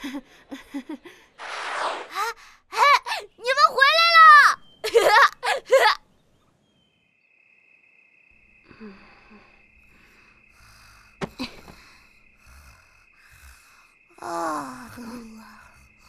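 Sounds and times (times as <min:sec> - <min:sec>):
cricket-like chirr: 0:00.0 - 0:16.0
sleeper breathing: 0:08.6 - 0:16.0.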